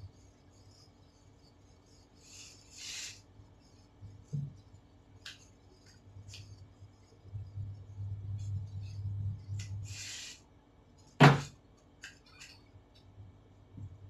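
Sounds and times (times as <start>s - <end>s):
duster rubbing whiteboard: 0.0s - 4.6s, 7.0s - 10.5s.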